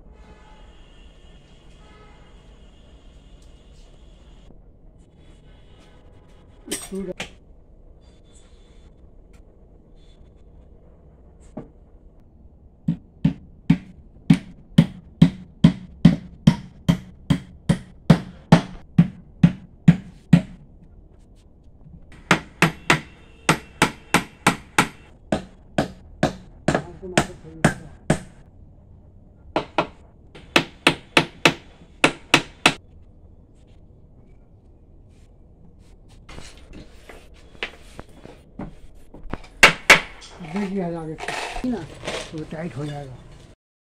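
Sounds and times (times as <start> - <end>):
hammer striking wooden chair: 12.9 - 20.6, 22.1 - 28.4, 29.6 - 32.8, 39.4 - 40.3.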